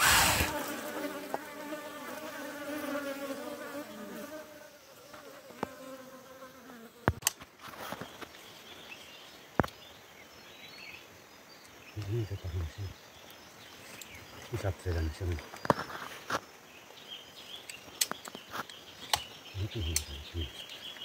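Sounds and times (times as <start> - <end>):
flying insect buzzing: 0.0 - 7.3.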